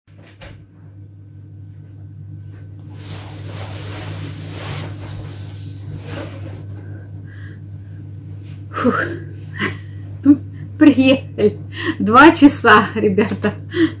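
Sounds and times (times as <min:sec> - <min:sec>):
steady low hum: 0:00.1 - 0:14.0
rustling and shuffling: 0:01.7 - 0:08.7.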